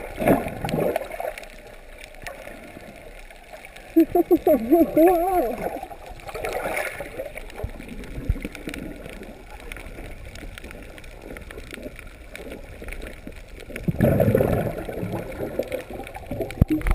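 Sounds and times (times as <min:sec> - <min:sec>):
faint crackling clicks: 0:00.0 - 0:16.9
low water surge: 0:00.0 - 0:16.9
muffled underwater noise: 0:00.0 - 0:16.9.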